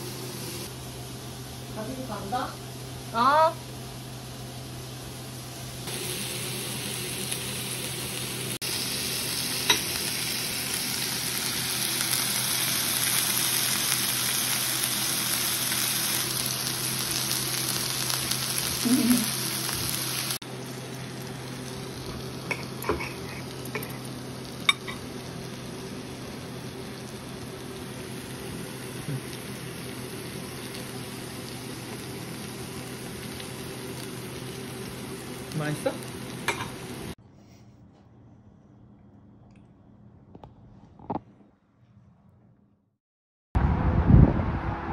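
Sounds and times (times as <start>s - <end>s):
meat sizzling in a skillet: 4.8s - 37.2s.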